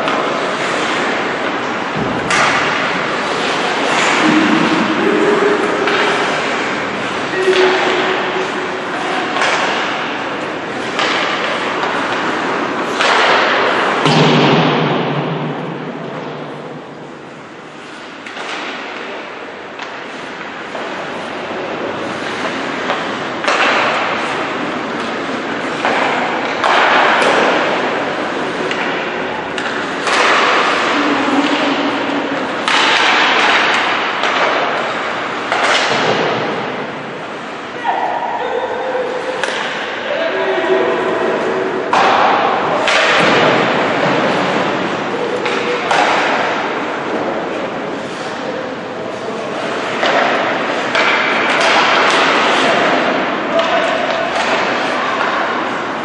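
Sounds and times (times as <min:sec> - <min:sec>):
skates scraping on ice: 0:00.0 - 0:14.0, 0:17.7 - 0:37.5, 0:41.0 - 0:56.0
hockey sticks and puck knocking: 0:00.0 - 0:17.1, 0:17.8 - 0:37.2, 0:39.3 - 0:40.0, 0:41.9 - 0:48.5, 0:49.6 - 0:56.0
thuds against rink boards: 0:10.9 - 0:16.4, 0:25.0 - 0:28.0, 0:28.6 - 0:31.9, 0:32.6 - 0:36.7, 0:41.9 - 0:46.8.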